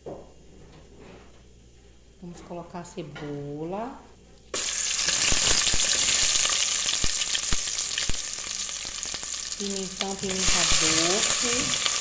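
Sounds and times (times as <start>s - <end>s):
onion sizzling in hot oil: 4.5s - 12.0s.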